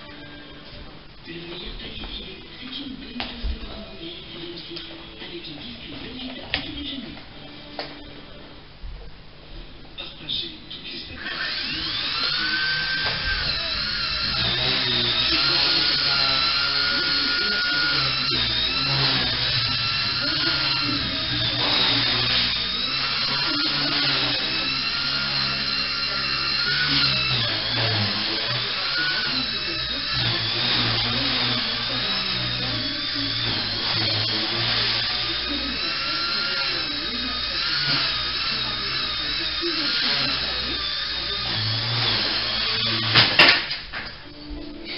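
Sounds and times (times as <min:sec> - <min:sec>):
helicopter motor whining: 0:11.1 - 0:43.6.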